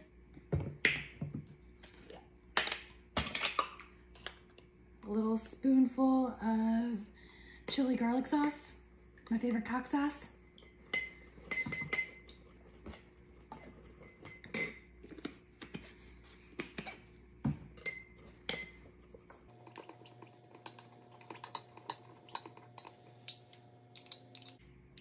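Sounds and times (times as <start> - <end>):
metal spoon clinking on glass bowl: 20.6 - 24.6.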